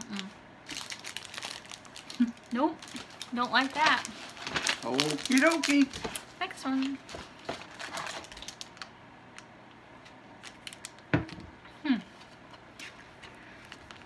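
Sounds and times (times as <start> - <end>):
plastic wrappers crinkling: 0.0 - 9.5, 10.4 - 11.1, 12.8 - 14.0
person humming: 11.8 - 12.1.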